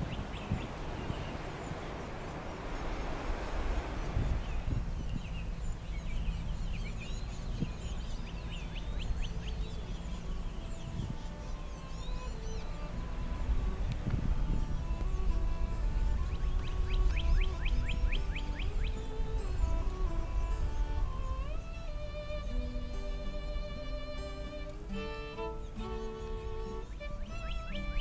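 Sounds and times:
songbirds chirping and singing: 0:00.0 - 0:28.0
steady low rumble: 0:00.0 - 0:28.0
background music with held notes: 0:06.4 - 0:28.0.

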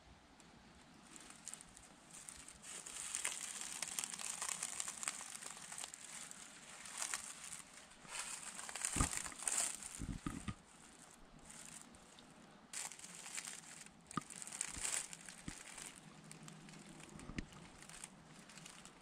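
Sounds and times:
footsteps in dry leaves: 0:01.0 - 0:19.0
dull low thumps: 0:08.8 - 0:10.6.

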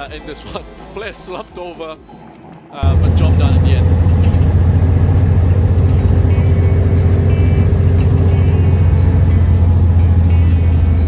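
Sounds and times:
light background music: 0:00.0 - 0:11.0
bus engine drone: 0:02.6 - 0:11.0.

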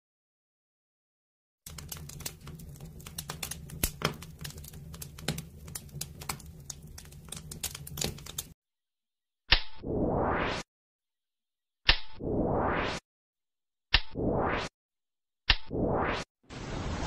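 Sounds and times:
fire crackling and popping: 0:01.7 - 0:08.6.

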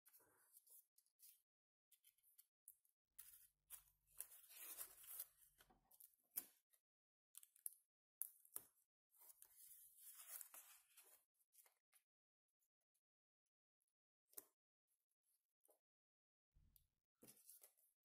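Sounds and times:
paper rustling and creasing: 0:09.5 - 0:11.2.

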